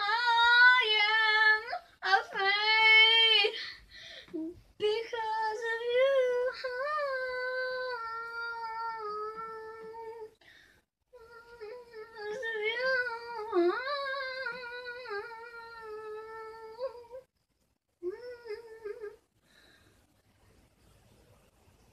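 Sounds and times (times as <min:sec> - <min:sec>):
child humming: 0:18.0 - 0:19.2.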